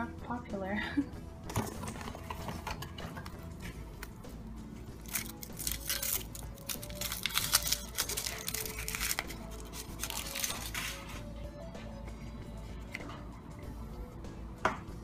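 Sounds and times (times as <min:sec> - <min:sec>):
foil wrapper crinkling and tearing: 0:05.0 - 0:11.3.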